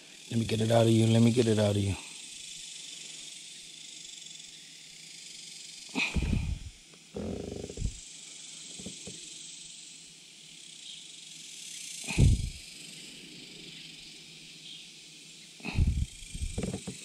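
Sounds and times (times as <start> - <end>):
high hiss: 0.0 - 17.0
rustling and knocking handling: 6.2 - 8.0, 8.8 - 9.2, 15.8 - 17.0.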